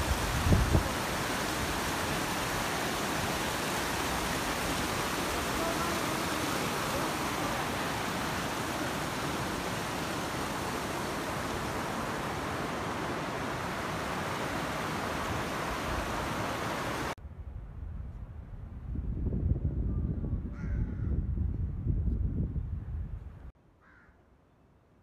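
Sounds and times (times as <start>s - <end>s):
stream rushing over rocks: 0.0s - 17.2s.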